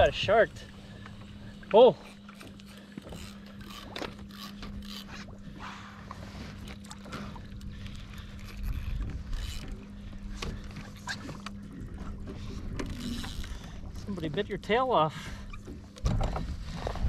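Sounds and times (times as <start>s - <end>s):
steady low hum: 0.0s - 17.0s
fishing rod and reel clicks and scrapes: 1.0s - 5.4s, 6.1s - 11.6s, 12.5s - 14.3s.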